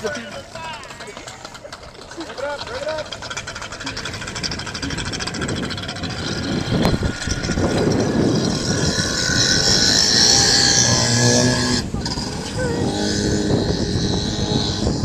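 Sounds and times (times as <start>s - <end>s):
water churning around hull: 0.0s - 15.0s
watercraft engine buzzing: 0.0s - 15.0s.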